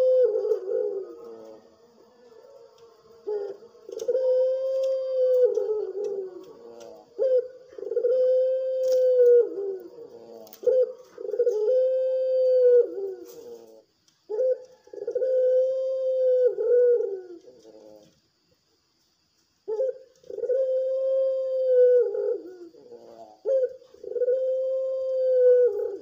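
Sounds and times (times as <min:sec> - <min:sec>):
dove cooing: 0:00.0 - 0:18.2, 0:19.7 - 0:26.0.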